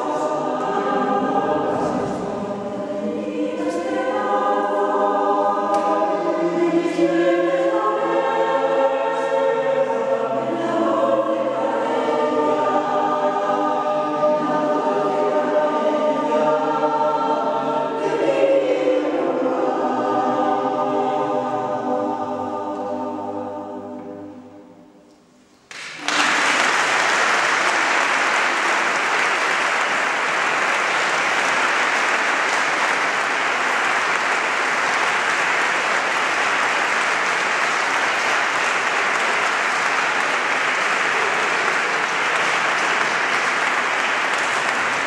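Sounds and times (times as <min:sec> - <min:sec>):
choir holding a chord: 0:00.0 - 0:25.3, 0:26.0 - 0:45.0
audience applause: 0:25.7 - 0:45.0.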